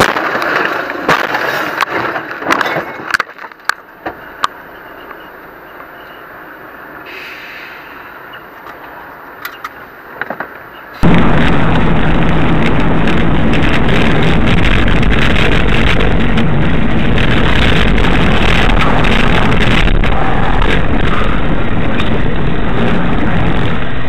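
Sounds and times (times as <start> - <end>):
road and wind noise: 0.0 - 24.0
car engine hum: 7.9 - 24.0.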